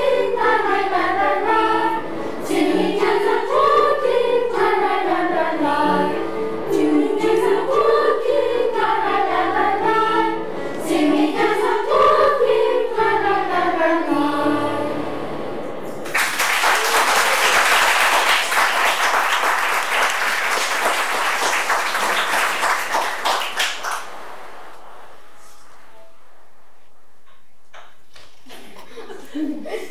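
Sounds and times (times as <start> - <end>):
children's choir singing: 0.0 - 16.2
audience applauding: 16.0 - 24.2.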